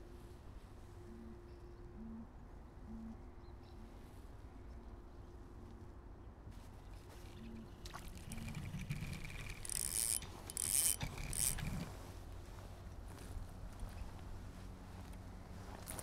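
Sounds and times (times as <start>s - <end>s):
rod and jacket handling noise: 6.5s - 12.0s, 15.0s - 16.0s
fishing reel whirring: 7.2s - 11.9s.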